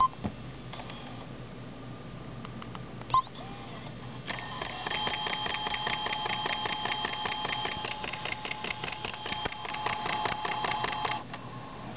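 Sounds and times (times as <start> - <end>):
tape rewinding rapid clicking: 4.3 - 11.3.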